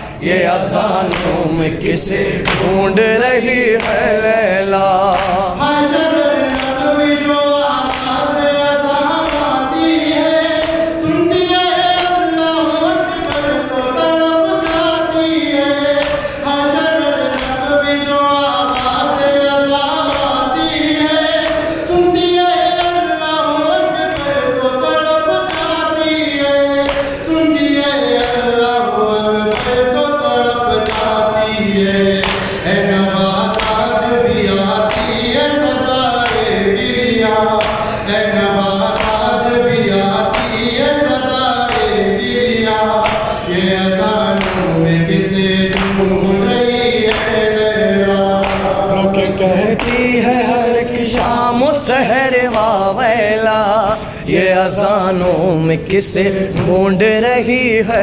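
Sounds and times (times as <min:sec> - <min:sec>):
voices singing a lament in chorus: 0:00.0 - 0:58.0.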